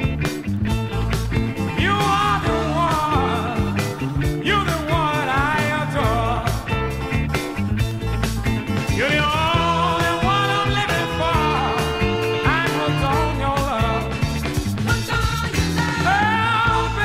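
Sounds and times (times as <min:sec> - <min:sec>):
blues-funk song from vinyl: 0:00.0 - 0:17.0
sliding guitar melody: 0:00.0 - 0:17.0.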